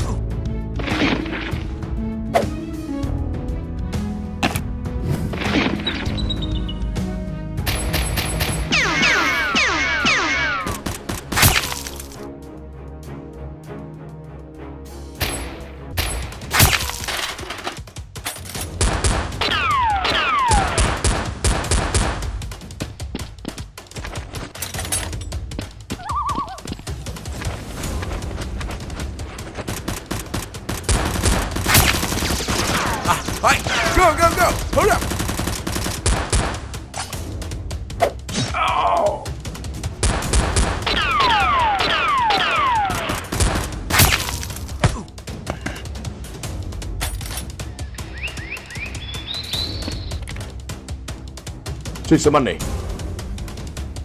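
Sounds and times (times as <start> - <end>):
background music: 0.0 - 54.0
rapid gunfire: 18.7 - 22.5, 29.5 - 36.9, 39.9 - 44.2.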